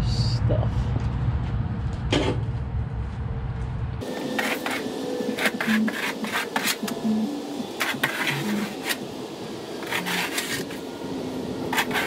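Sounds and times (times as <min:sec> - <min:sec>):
shovel scraping ground: 0:04.3 - 0:07.0, 0:07.8 - 0:09.0, 0:09.8 - 0:10.8, 0:11.7 - 0:12.0.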